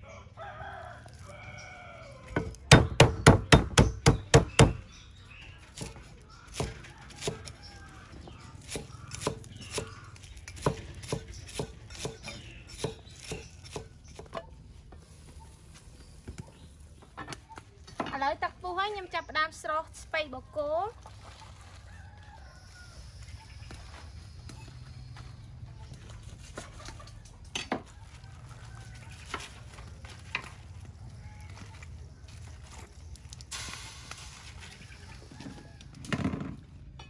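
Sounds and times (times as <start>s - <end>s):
cleaver chopping on wooden block: 2.4s - 4.8s.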